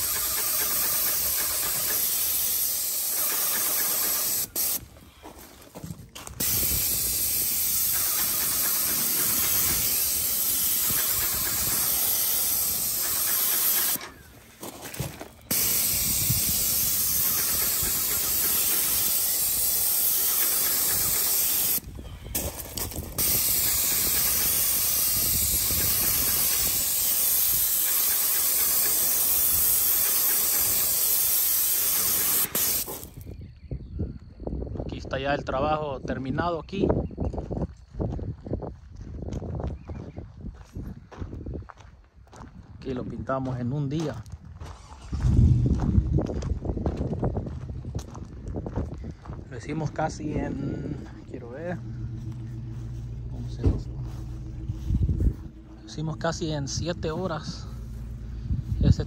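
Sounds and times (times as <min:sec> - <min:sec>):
paint spray gun hissing: 0:00.0 - 0:04.9, 0:06.4 - 0:14.4, 0:15.4 - 0:33.2, 0:51.5 - 0:59.0.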